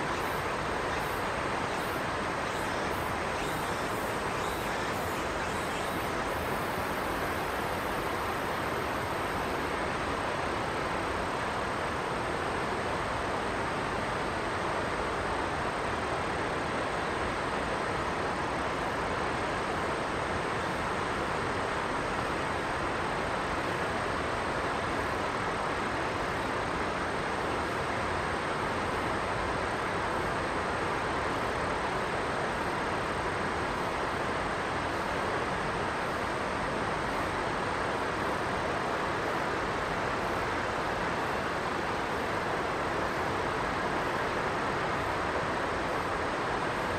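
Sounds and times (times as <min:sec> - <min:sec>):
steady rushing noise: 0:00.0 - 0:20.4
river flowing: 0:00.0 - 0:46.9.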